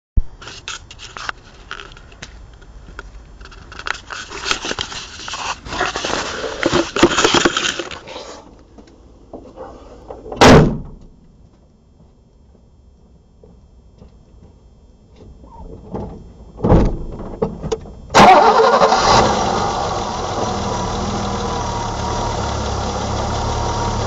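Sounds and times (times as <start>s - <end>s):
phone handling rustling and clicking: 3.0s - 8.0s
loud thump: 10.4s - 11.0s.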